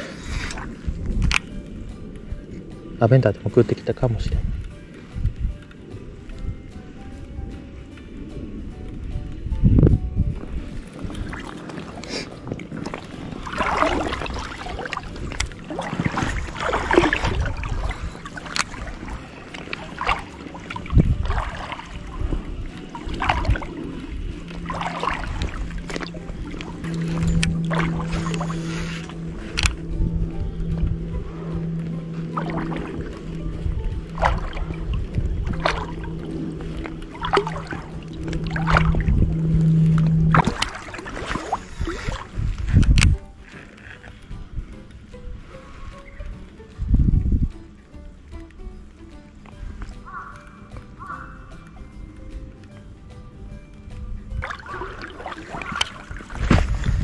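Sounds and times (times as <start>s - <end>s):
steady low hum: 0.0s - 43.4s
low rumble: 0.0s - 43.5s
water sloshing and splashing: 0.0s - 57.0s.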